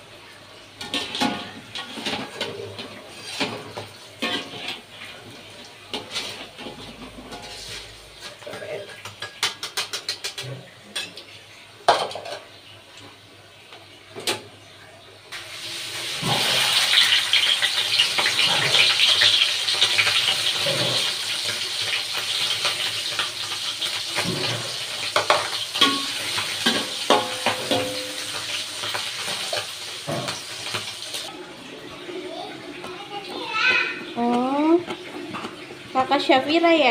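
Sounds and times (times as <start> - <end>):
metal spatula scraping a wok: 0.9 - 4.9, 5.9 - 9.0
fish sizzling in hot oil: 15.3 - 31.3, 33.1 - 36.9.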